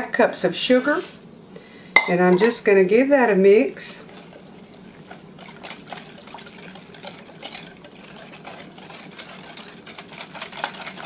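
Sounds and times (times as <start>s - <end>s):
liquid sloshing: 4.1s - 11.0s.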